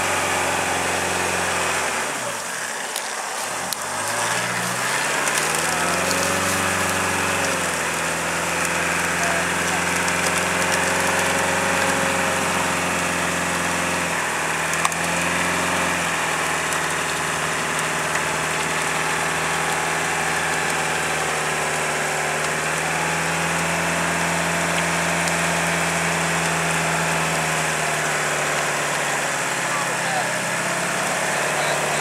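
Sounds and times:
truck engine running: 0.0 - 32.0.

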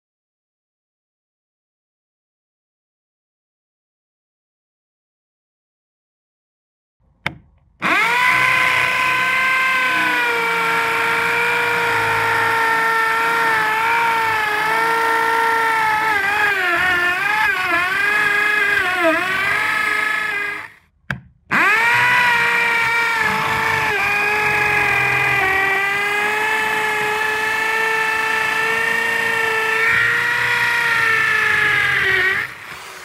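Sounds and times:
electric drill boring into masonry: 7.8 - 20.8, 21.5 - 33.0.

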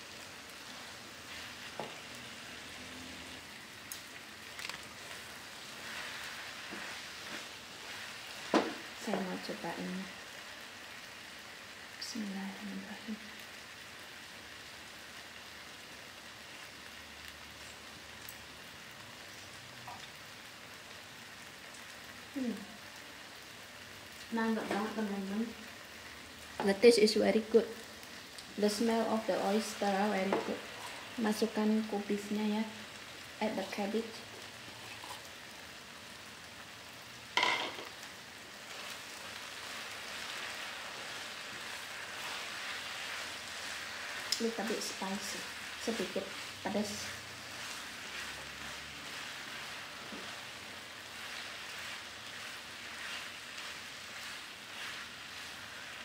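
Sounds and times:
noodles sizzling softly in pan: 0.0 - 56.0
spatula stirring: 4.4 - 9.0, 38.6 - 56.0.

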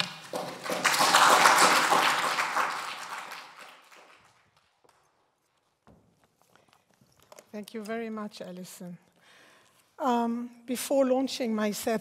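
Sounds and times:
audience applause: 0.0 - 4.4.

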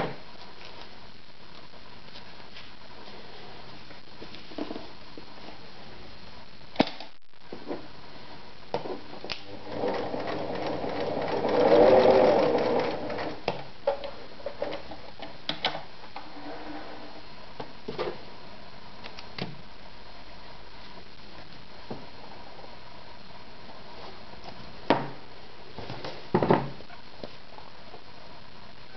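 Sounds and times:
sewing machine motor running: 9.6 - 13.4.

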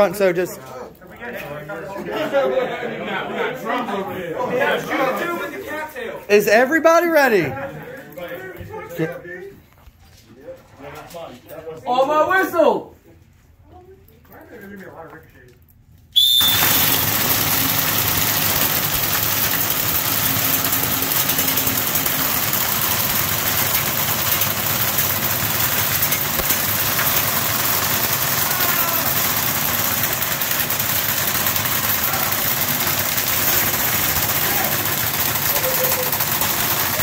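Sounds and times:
airsoft guns firing full auto: 16.2 - 37.0.

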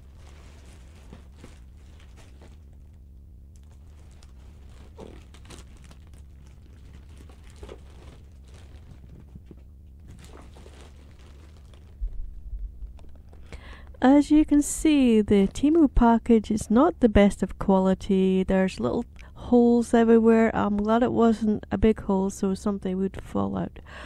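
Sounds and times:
plastic mailer crinkling: 0.0 - 13.6
steady low hum: 0.0 - 24.0.

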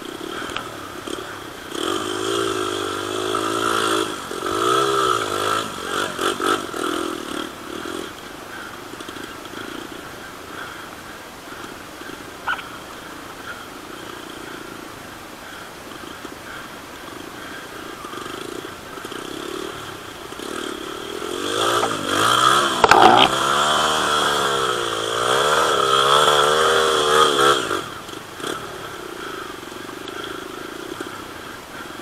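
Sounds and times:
dirt bike engine revving: 0.0 - 10.7, 17.1 - 32.0.

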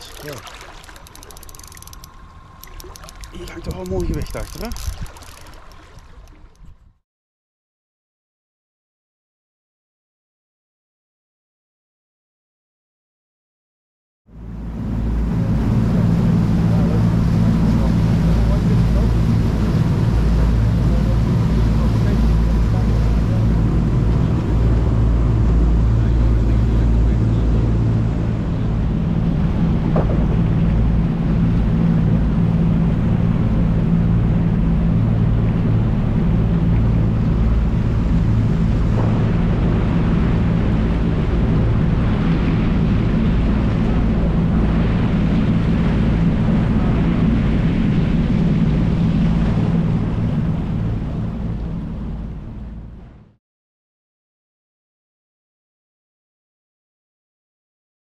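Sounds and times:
boat engine humming: 0.0 - 7.0, 14.3 - 53.3
water noise: 0.0 - 7.0, 14.3 - 53.3
wind: 0.0 - 7.0, 14.3 - 53.4.

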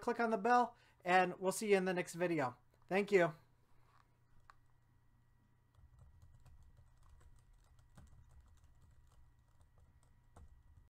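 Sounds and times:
low steady hum: 0.0 - 10.9
computer keyboard typing: 5.7 - 10.9.

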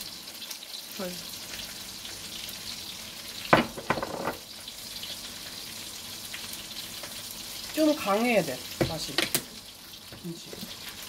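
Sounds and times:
jars knocking: 3.6 - 4.4.

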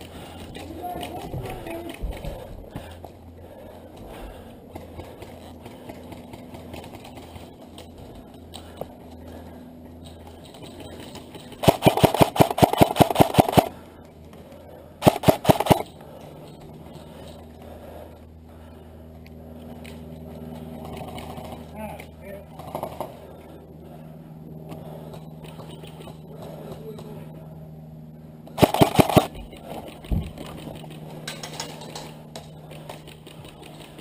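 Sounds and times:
airsoft rifle firing bursts: 10.9 - 13.8, 15.0 - 15.9, 28.6 - 31.2.

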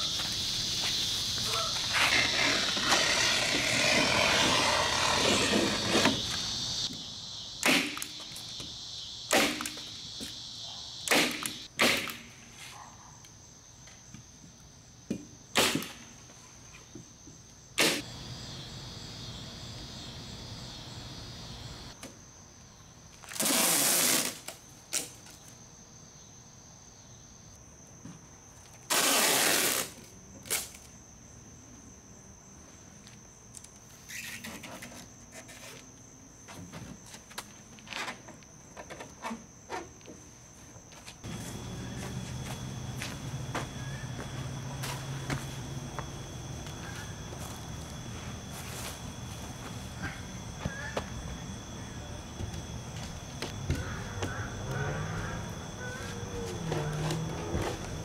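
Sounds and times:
crickets trilling: 0.0 - 58.0
house wrap and tape rustling: 0.2 - 6.9, 23.2 - 25.6, 28.6 - 30.9.

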